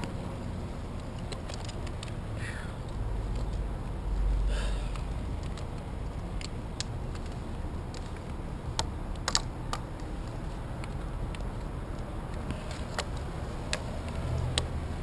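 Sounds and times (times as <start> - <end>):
low steady rumble: 0.0 - 15.0
climbing hardware clicks and taps: 4.9 - 10.1, 10.7 - 14.8.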